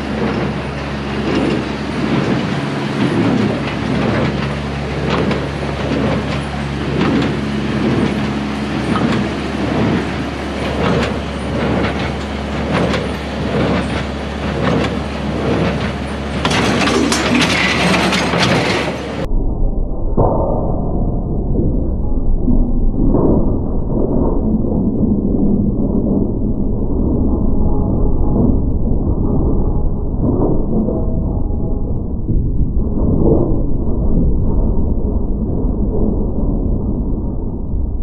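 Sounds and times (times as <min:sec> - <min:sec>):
machine rattling: 0:00.0 - 0:19.3
baler drive hum: 0:00.0 - 0:33.0.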